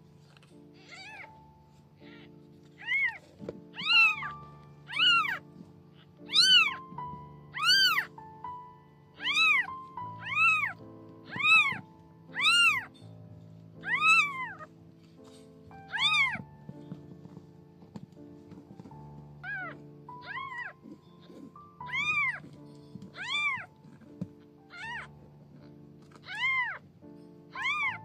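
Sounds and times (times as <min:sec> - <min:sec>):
soft background music: 0:00.0 - 0:28.0
kitten meowing: 0:00.8 - 0:01.4, 0:02.0 - 0:08.6, 0:09.2 - 0:13.0, 0:13.8 - 0:14.7, 0:15.9 - 0:16.5, 0:19.4 - 0:23.8, 0:24.7 - 0:25.1, 0:26.1 - 0:26.8, 0:27.5 - 0:28.0.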